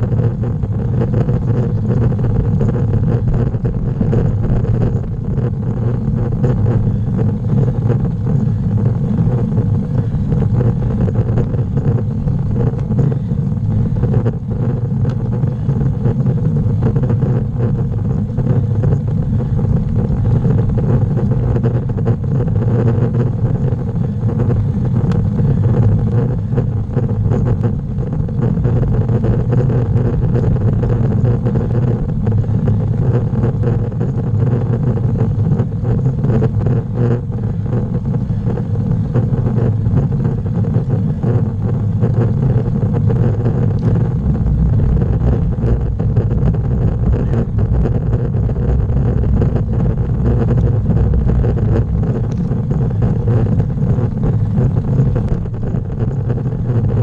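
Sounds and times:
wind rumble on microphone: 0:00.0 - 0:57.0.

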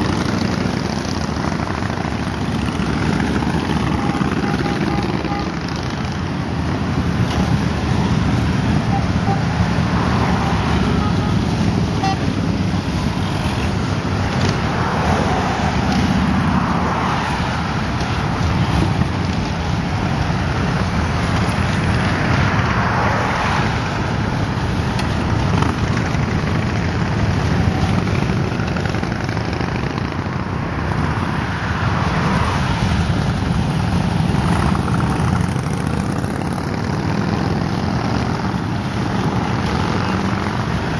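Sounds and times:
motorcycles riding past: 0:00.0 - 0:40.9.

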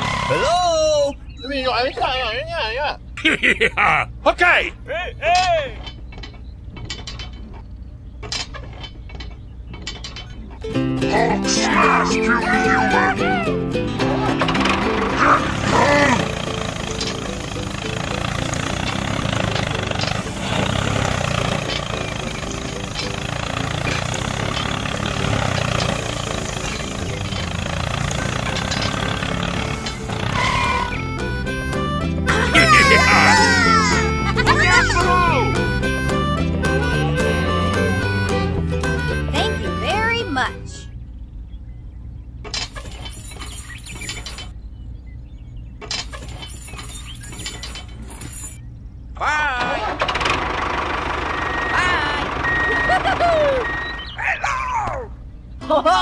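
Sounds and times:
small tractor engine rumbling: 0:00.0 - 0:56.0
dense mechanical clicking: 0:14.4 - 0:31.0, 0:49.6 - 0:54.1.

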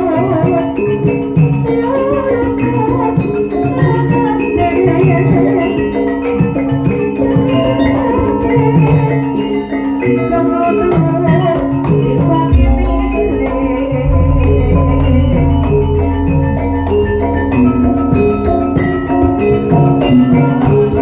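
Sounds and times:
metallophones and gong-chimes ringing: 0:12.4 - 0:21.0
deep gong struck: 0:12.5 - 0:18.4
drum strokes: 0:12.5 - 0:19.8.

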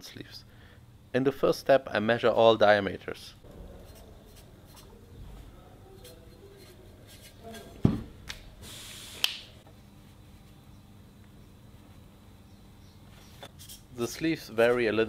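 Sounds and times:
scraping rub: 0:03.5 - 0:07.8.

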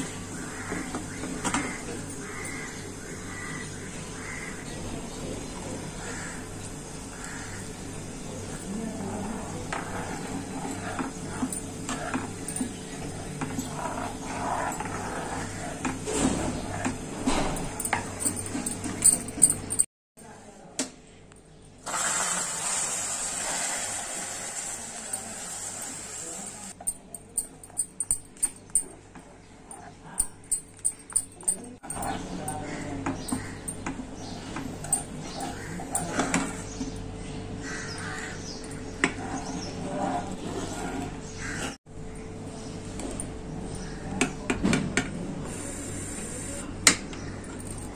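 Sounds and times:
bird cawing: 0:00.3 - 0:04.7, 0:06.0 - 0:07.8, 0:37.6 - 0:38.8.

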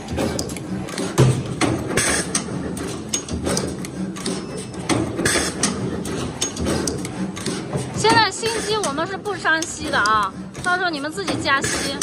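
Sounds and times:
machine pneumatic heads clacking: 0:00.0 - 0:09.0, 0:11.6 - 0:12.0.

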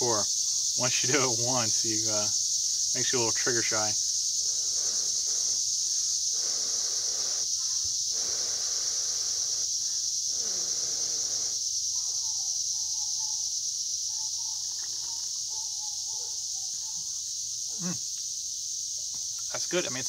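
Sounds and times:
insect chorus: 0:00.0 - 0:20.0
person blowing on hot drink: 0:04.4 - 0:11.6.

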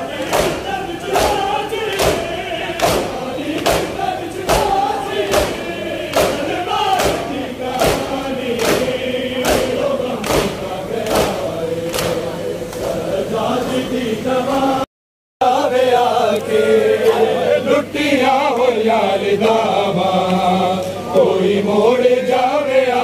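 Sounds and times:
men chanting together: 0:00.0 - 0:23.0
chest beating slaps: 0:00.2 - 0:12.2.

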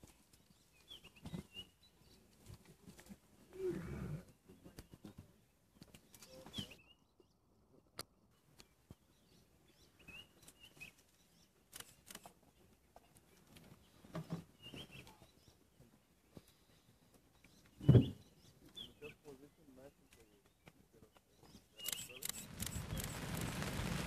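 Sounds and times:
faint bird chirps: 0:03.6 - 0:07.5, 0:08.6 - 0:23.5.

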